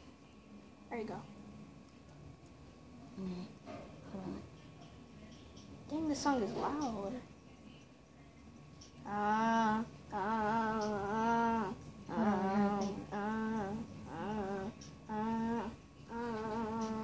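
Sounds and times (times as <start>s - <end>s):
person humming a tune: 9.1s - 17.0s.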